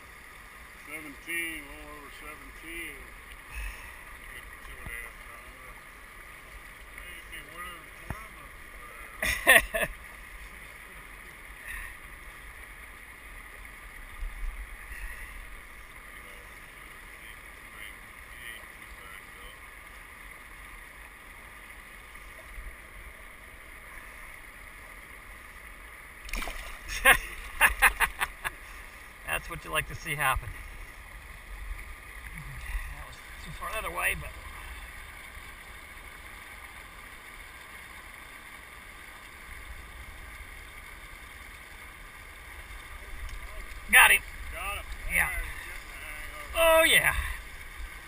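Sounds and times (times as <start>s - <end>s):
river water lapping: 0.0s - 48.0s.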